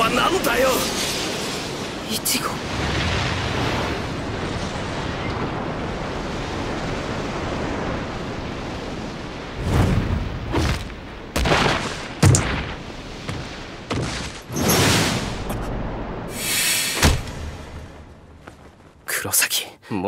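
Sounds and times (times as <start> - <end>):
rushing rumble: 0.0 - 19.1.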